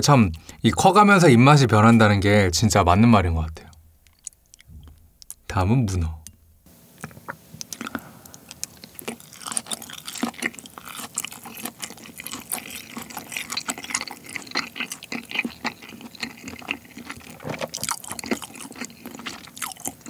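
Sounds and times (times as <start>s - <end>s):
chewing with mouth clicks: 4.0s - 5.4s, 7.0s - 20.0s.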